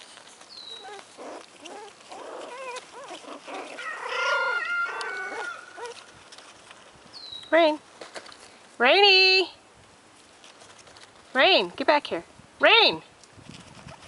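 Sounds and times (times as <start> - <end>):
puppies whining and whimpering: 0.6 - 6.1.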